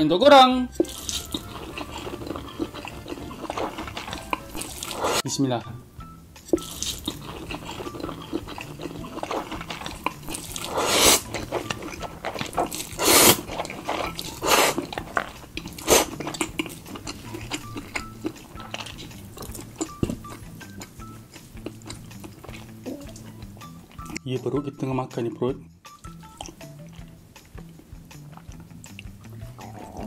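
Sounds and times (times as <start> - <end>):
soft background music: 0.0 - 30.0
loud noodle slurping: 0.8 - 5.2, 6.6 - 20.8
wet chewing: 0.8 - 5.2, 6.4 - 24.2, 26.0 - 30.0.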